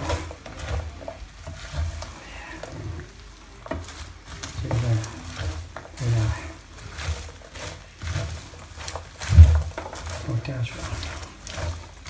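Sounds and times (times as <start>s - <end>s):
popcorn rustling and scraping: 0.0s - 12.0s.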